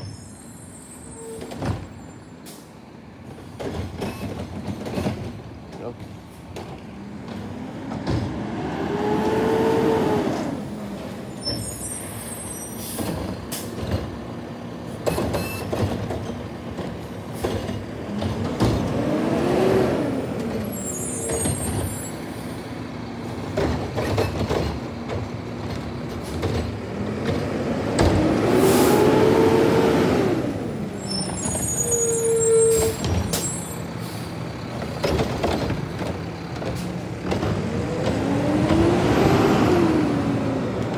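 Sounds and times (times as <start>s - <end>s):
diesel engine revving: 6.9s - 11.4s, 17.2s - 23.6s, 25.0s - 31.5s, 32.7s - 40.9s.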